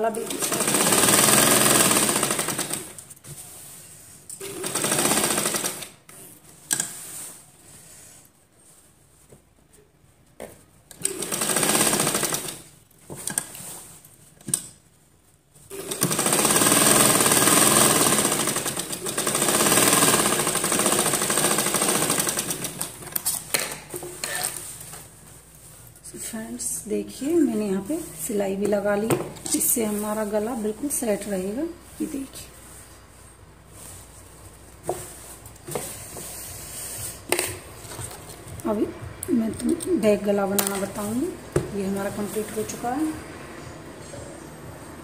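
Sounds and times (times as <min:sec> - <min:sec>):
sewing machine running: 0:00.1 - 0:03.0, 0:04.4 - 0:06.0, 0:11.0 - 0:12.7, 0:15.7 - 0:23.0.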